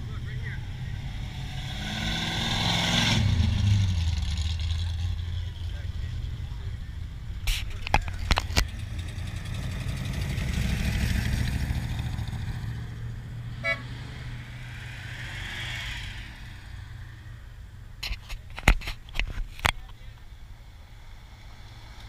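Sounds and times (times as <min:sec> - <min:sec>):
car engines rumbling: 0:00.0 - 0:22.0
car horn toot: 0:13.6 - 0:13.9.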